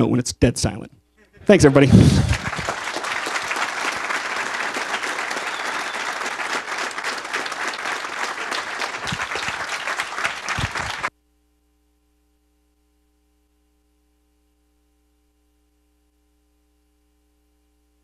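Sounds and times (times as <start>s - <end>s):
audience applauding: 1.4s - 11.1s.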